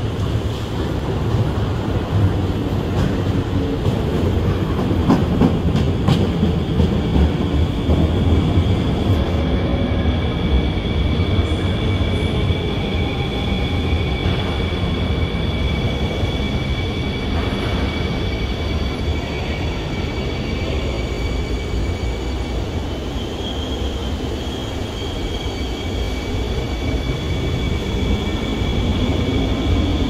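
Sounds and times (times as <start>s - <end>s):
train low rumble: 0.0s - 23.0s
train high whines: 0.0s - 30.0s.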